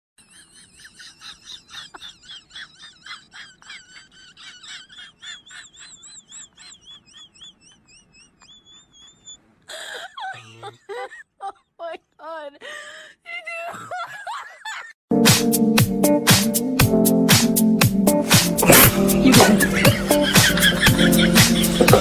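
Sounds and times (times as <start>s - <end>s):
rapid high-pitched chirping: 4.8s - 9.4s.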